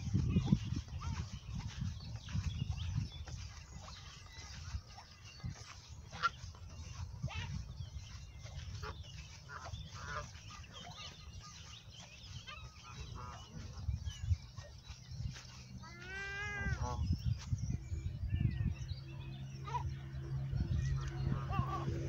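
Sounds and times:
geese honking: 0:00.0 - 0:17.1.

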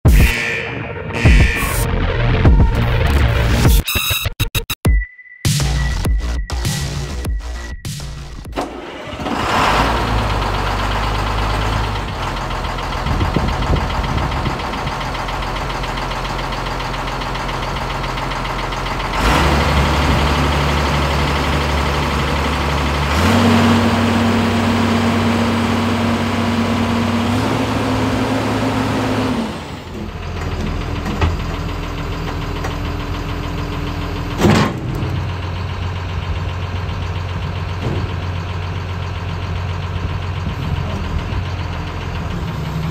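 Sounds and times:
excavator diesel engine running: 0:00.0 - 0:03.8, 0:05.8 - 0:42.9
high whine: 0:00.1 - 0:08.5.

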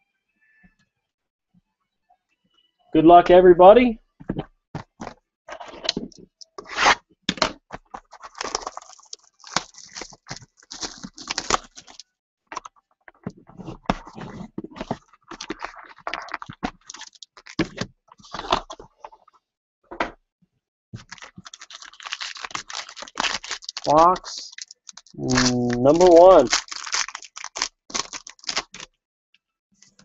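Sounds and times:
plastic wrap crinkling: 0:07.9 - 0:12.0, 0:14.0 - 0:18.8, 0:21.0 - 0:28.9.

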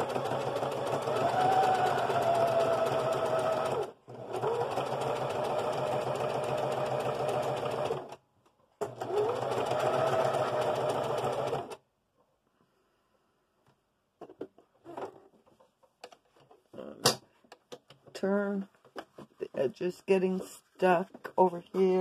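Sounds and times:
electric sewing machine stitching: 0:00.0 - 0:08.2, 0:08.8 - 0:11.8.

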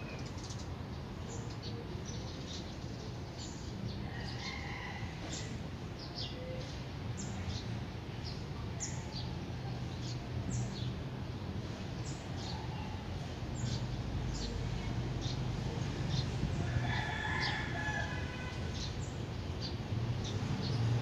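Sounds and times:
small birds chirping: 0:11.9 - 0:21.0.

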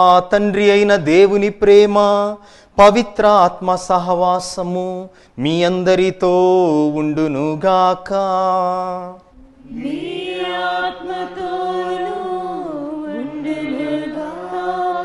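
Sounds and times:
priest chanting: 0:00.0 - 0:15.0
choir singing: 0:09.4 - 0:15.0.

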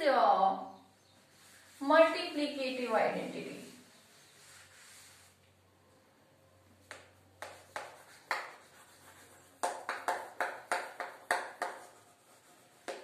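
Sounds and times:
chalk tapping on blackboard: 0:06.8 - 0:13.0.

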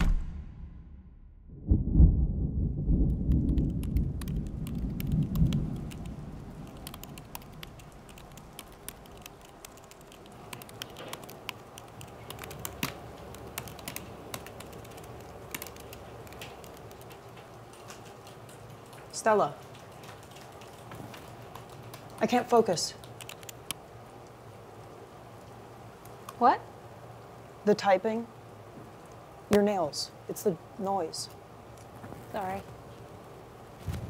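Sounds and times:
loud low rumble: 0:00.0 - 0:06.8
fingernails typing on laptop keyboard: 0:03.3 - 0:23.8.

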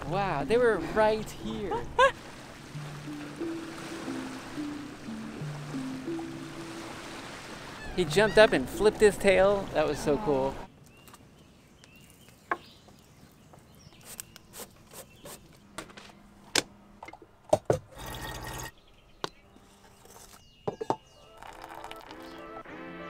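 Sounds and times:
water dripping: 0:00.8 - 0:10.1
music: 0:02.8 - 0:06.9, 0:21.2 - 0:23.0
water pouring: 0:17.9 - 0:18.7, 0:21.2 - 0:22.4.

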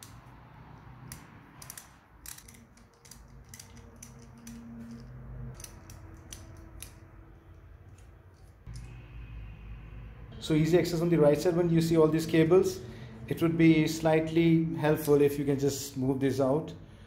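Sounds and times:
socket ratchet clicking: 0:00.0 - 0:07.1.

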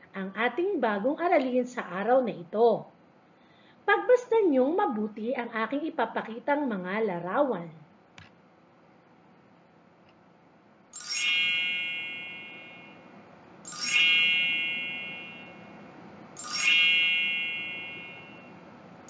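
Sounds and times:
bright chime ringing: 0:11.0 - 0:18.6.

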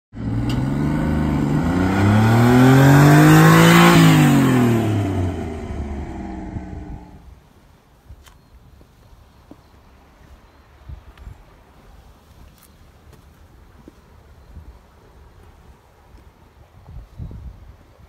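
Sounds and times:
van engine driving past: 0:00.2 - 0:07.2.

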